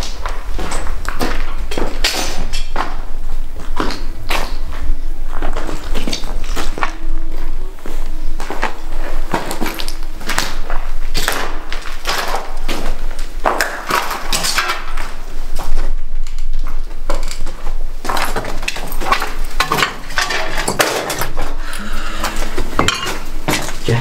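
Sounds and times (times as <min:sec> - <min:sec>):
hard objects clattering: 0:17.1 - 0:24.0.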